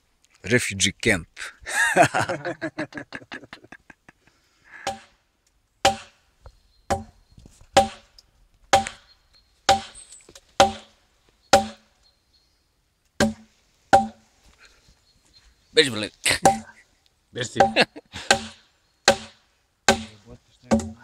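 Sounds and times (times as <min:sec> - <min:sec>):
burst of laughter: 0:01.7 - 0:04.8
axe chopping log: 0:05.8 - 0:06.2, 0:06.9 - 0:07.1, 0:07.8 - 0:08.1, 0:08.7 - 0:09.0, 0:09.7 - 0:10.0, 0:10.6 - 0:10.9, 0:11.5 - 0:11.8, 0:13.2 - 0:14.2, 0:17.6 - 0:21.0.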